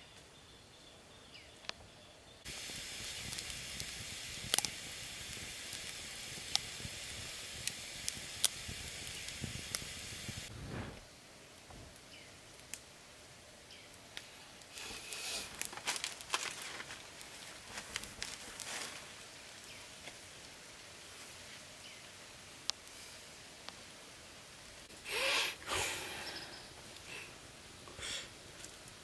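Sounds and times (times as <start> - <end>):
outdoor ambience: 0.0 - 29.0
campfire crackling and popping: 2.4 - 13.0, 13.8 - 20.6, 22.6 - 23.0, 26.8 - 29.0
rustling: 14.8 - 20.3.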